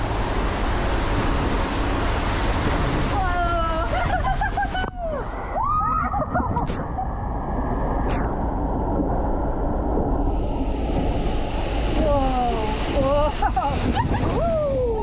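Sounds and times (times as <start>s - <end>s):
water rushing through flume: 0.0s - 15.0s
bright hiss: 10.2s - 15.0s.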